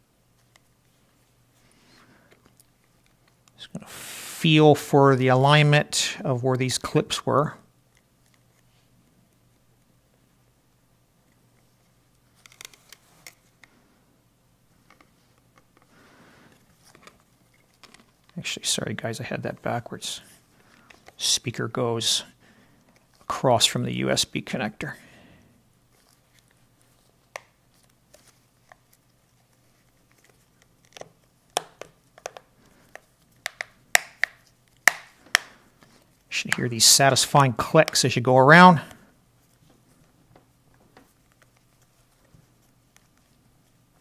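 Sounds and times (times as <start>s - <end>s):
soft rustle: 25.8s - 31.5s, 38.9s - 44.0s
plastic cover clicks and taps: 30.9s - 35.6s.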